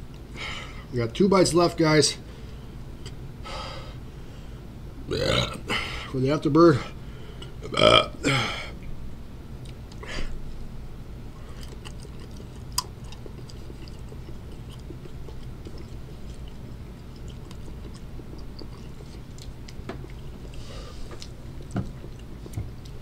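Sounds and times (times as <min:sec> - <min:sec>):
steady low hum: 0:00.0 - 0:23.0
person chewing crunchy candy: 0:11.3 - 0:23.0.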